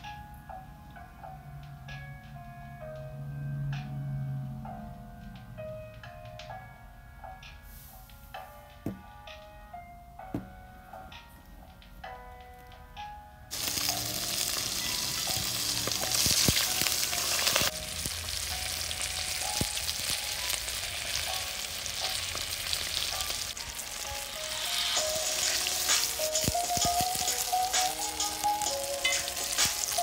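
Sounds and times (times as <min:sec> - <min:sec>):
fish sizzling in hot oil: 0:13.5 - 0:30.0.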